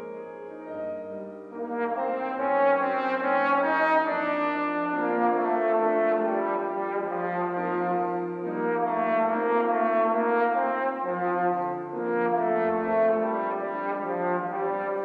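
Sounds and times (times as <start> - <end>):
grand piano accompaniment: 0.0 - 15.0
trombone slow melody: 1.5 - 15.0.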